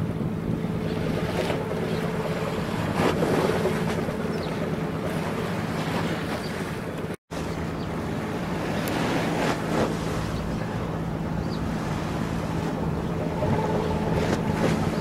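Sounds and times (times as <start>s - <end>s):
ship engine drone: 0.0s - 15.0s
water wash: 1.1s - 15.0s
wind on microphone: 7.8s - 15.0s.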